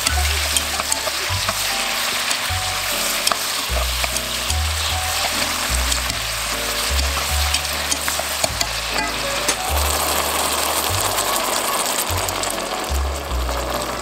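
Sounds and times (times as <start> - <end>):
vegetables sizzling in oil: 0.0 - 14.0
wine poured into hot pan: 0.0 - 14.0
metal tongs clicking on pan: 0.1 - 2.4, 3.1 - 6.2, 6.9 - 9.6.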